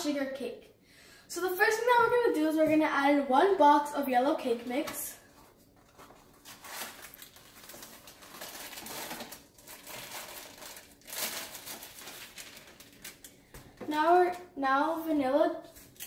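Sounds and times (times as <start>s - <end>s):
plastic bag crinkling and tearing: 5.8s - 13.4s.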